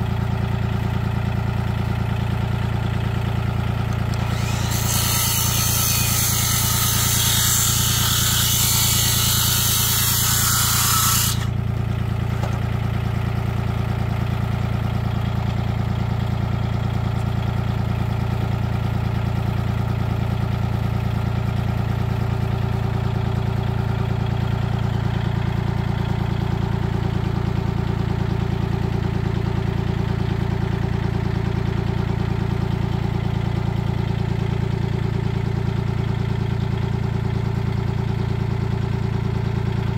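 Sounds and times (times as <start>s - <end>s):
diesel tractor engine idling: 0.0s - 4.7s, 11.4s - 39.9s
circular saw cutting wood: 4.1s - 11.6s.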